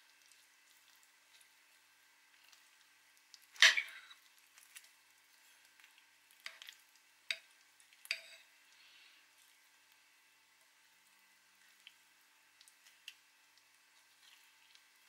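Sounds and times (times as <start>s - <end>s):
cutlery scraping a ceramic plate: 8.1s - 8.4s.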